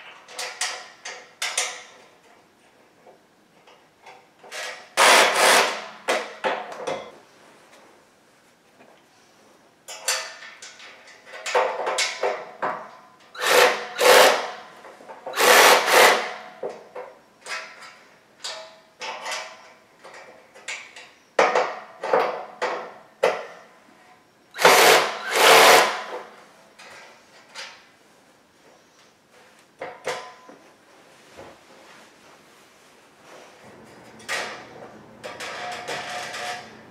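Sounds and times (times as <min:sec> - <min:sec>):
cordless drill whining: 0:24.6 - 0:25.9.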